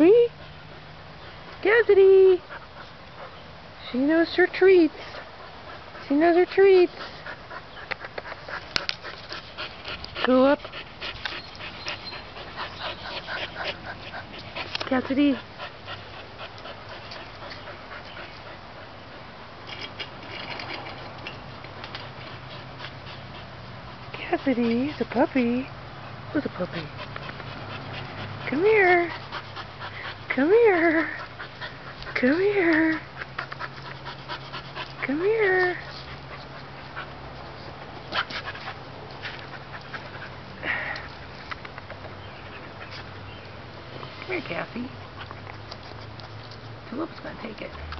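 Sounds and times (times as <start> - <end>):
dog panting: 0.2 - 43.4
dog claws clicking and scuffling: 7.3 - 15.2, 19.6 - 23.5, 41.0 - 42.2, 45.0 - 47.9.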